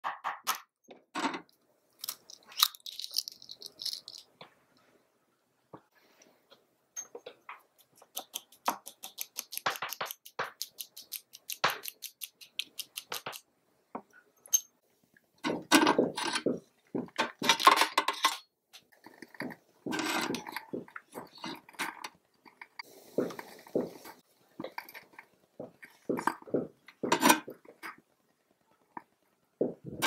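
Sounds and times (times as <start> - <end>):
fork whisking egg in bowl: 7.7 - 13.4.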